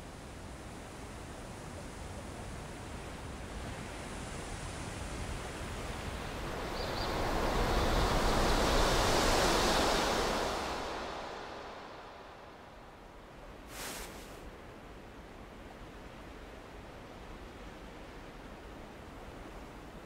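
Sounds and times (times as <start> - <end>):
outdoor rushing noise: 6.3 - 13.1.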